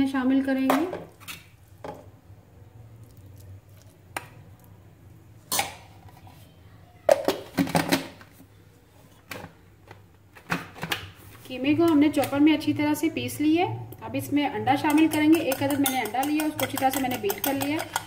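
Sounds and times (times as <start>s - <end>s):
metal spoon scraping a pan: 14.6s - 18.0s.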